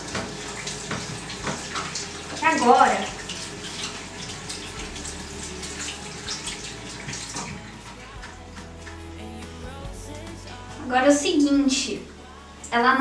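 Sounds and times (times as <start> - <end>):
wet squelches and splashes: 0.0 - 9.0.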